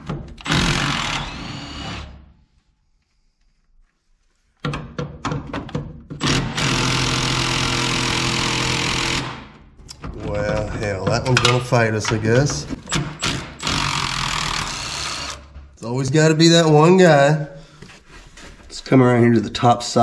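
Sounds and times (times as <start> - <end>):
handheld power tool running: 0.4 - 2.2, 6.2 - 9.5, 12.8 - 15.5.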